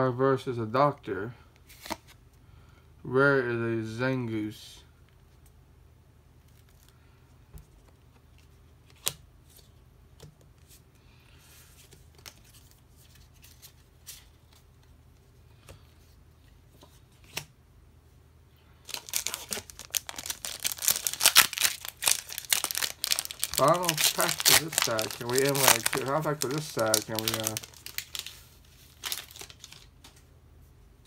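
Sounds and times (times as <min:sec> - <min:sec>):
foil wrapper crinkling: 0:18.8 - 0:30.1.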